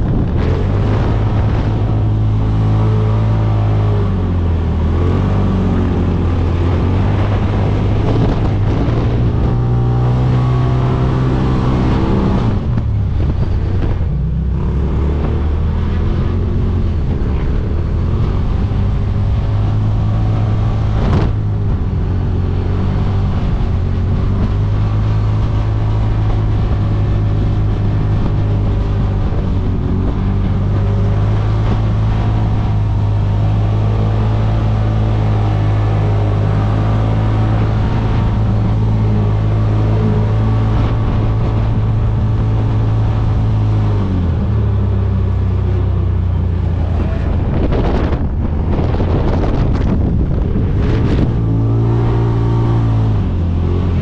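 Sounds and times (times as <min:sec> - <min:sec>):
utility vehicle engine revving: 0:00.0 - 0:54.0.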